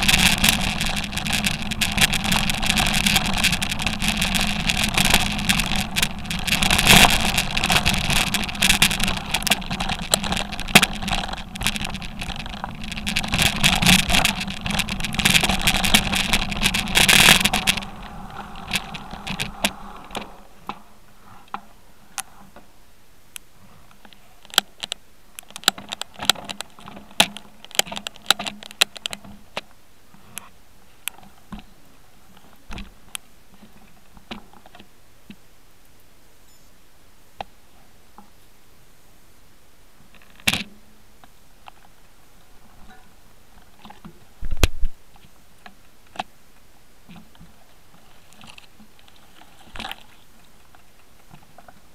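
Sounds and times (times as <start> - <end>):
bike rattling over rocky trail: 0.0 - 22.7, 23.8 - 30.3, 40.0 - 51.9
faint clicks of bike being walked: 0.0 - 38.7, 39.8 - 51.9.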